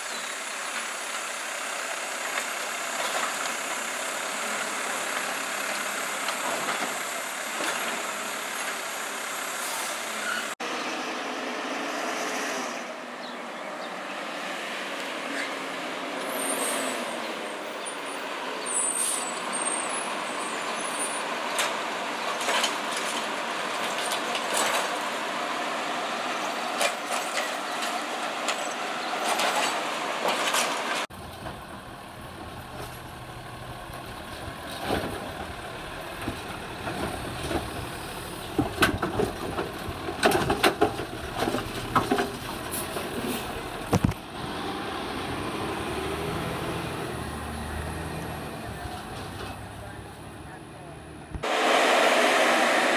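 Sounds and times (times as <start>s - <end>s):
diesel truck engine running: 31.1s - 52.9s.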